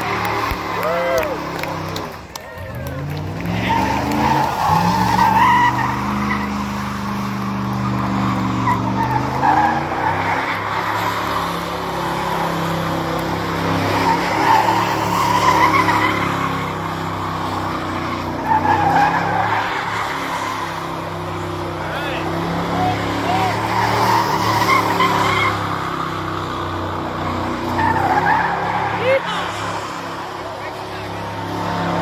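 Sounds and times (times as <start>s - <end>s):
engine revving high: 0.0s - 32.0s
tires squealing on pavement: 0.0s - 32.0s.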